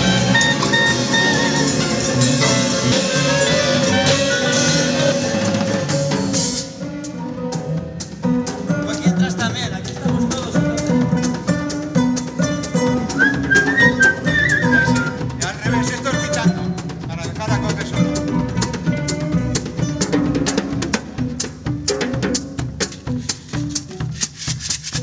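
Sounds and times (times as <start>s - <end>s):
small band playing: 0.0s - 25.0s
sharp percussive strokes: 22.3s - 25.0s.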